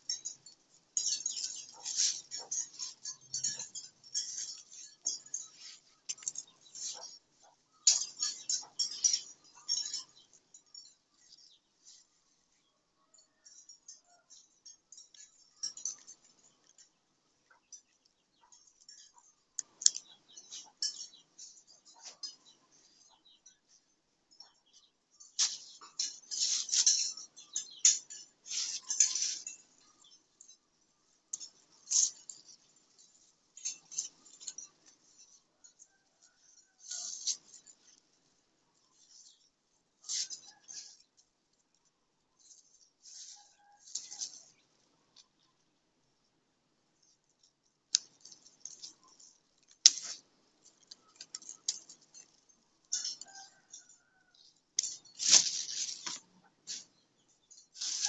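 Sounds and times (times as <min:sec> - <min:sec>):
herb stems and leaves rustling: 0:00.0 - 0:12.8, 0:25.2 - 0:45.4, 0:47.0 - 0:58.0
stems snapping: 0:49.6 - 0:50.2
herb leaves rustling: 0:54.8 - 0:56.9, 0:57.8 - 0:58.0.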